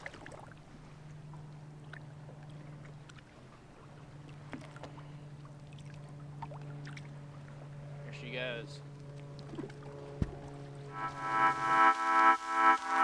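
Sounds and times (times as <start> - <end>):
water splashes: 0.0 - 1.1, 1.7 - 8.0.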